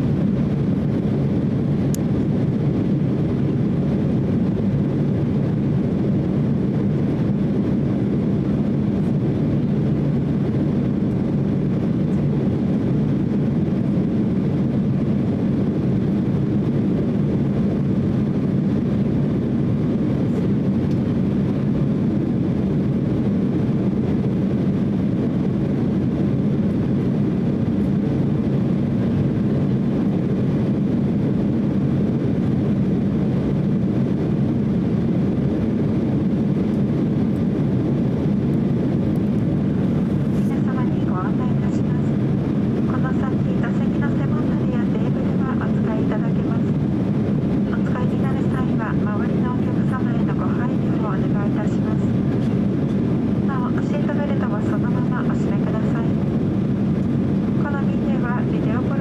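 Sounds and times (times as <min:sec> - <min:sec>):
jet engines droning: 0:00.0 - 0:59.0
rushing airflow: 0:00.0 - 0:59.0.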